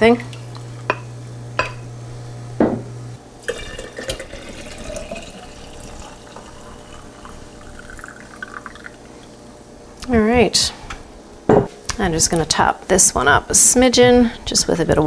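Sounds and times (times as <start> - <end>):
liquid pouring into glass jar: 3.4 - 9.4.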